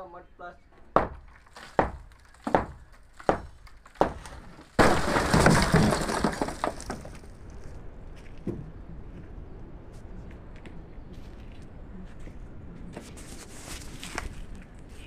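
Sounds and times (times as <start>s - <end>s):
brick mould crashing down: 1.0s - 7.5s.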